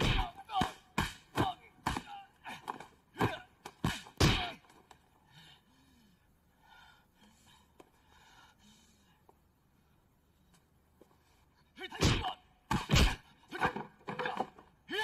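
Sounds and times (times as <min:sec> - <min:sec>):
punch and kick impacts: 0:00.0 - 0:02.2, 0:03.1 - 0:04.6, 0:12.0 - 0:13.9
breathing and gasps: 0:05.1 - 0:09.4.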